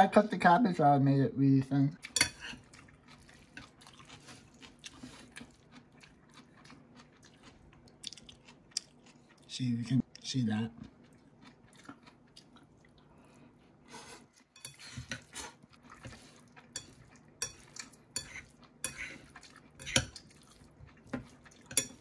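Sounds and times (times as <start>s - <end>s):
spoon stirring in bowl: 2.0s - 5.4s, 14.1s - 22.0s.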